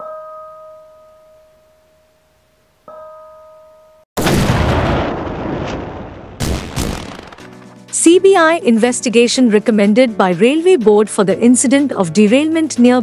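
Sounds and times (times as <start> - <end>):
loud boom sound effect: 4.2 - 7.6.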